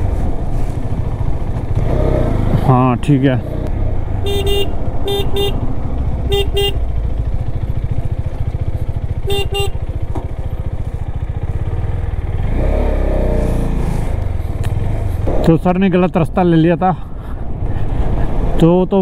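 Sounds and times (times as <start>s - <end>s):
motorcycle engine running: 0.0s - 16.1s
motorcycle horn toots: 4.2s - 6.9s, 9.1s - 10.1s.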